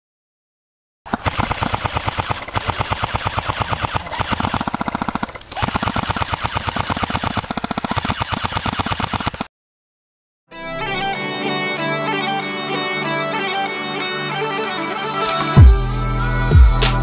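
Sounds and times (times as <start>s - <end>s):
airsoft machine gun firing: 1.1s - 9.5s.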